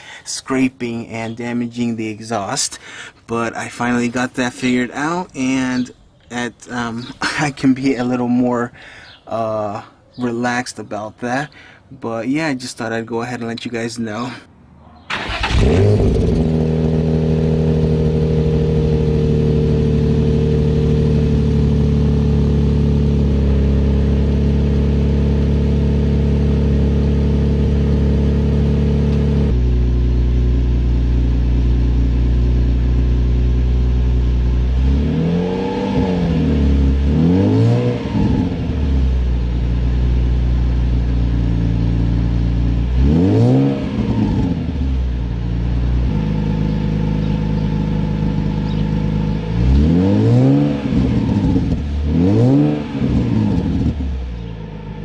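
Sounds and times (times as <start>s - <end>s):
car engine idling and revving: 15.1s - 55.0s.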